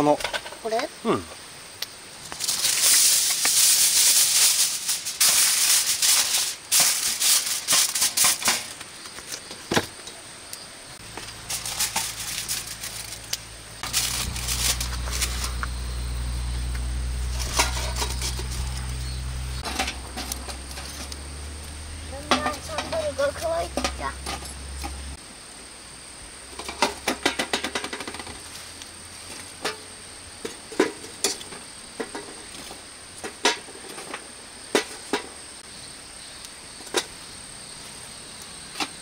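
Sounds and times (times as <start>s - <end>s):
aluminium foil crinkling: 2.3s - 9.5s, 11.0s - 16.1s
low steady hum: 10.9s - 26.8s.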